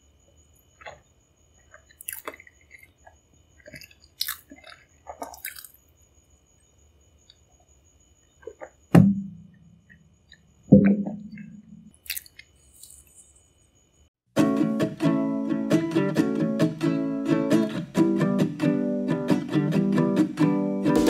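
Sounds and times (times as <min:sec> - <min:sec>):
wet mouth clicks: 0:01.6 - 0:05.8, 0:11.3 - 0:13.0
low thud of glass: 0:08.9 - 0:09.6.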